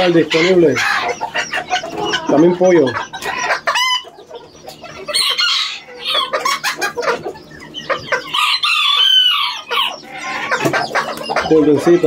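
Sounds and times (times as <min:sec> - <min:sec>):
chickens clucking: 0:00.0 - 0:12.0
rooster crowing: 0:05.1 - 0:06.6, 0:08.2 - 0:10.6.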